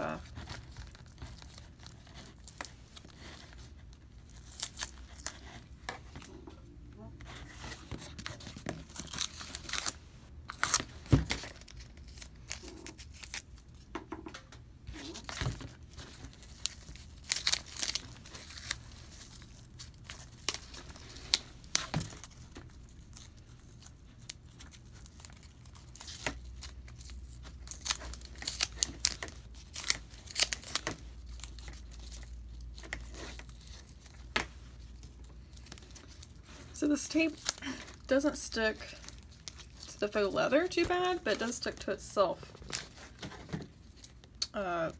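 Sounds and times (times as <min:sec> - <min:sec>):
tape crinkling: 0:00.0 - 0:13.9, 0:14.5 - 0:44.9.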